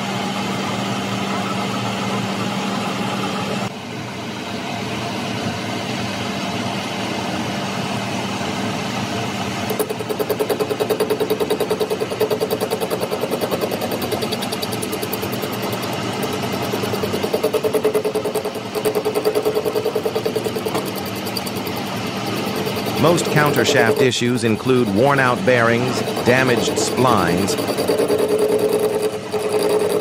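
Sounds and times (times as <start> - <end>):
fast buzzing pulsing: 9.7 - 30.0
metal lathe turning: 9.7 - 30.0.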